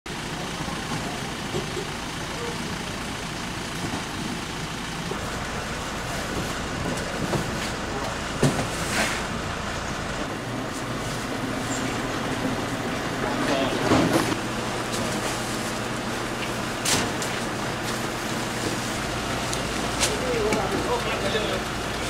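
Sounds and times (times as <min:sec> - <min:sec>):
vehicle engine running: 0:00.1 - 0:22.0
indistinct voices: 0:11.4 - 0:14.4.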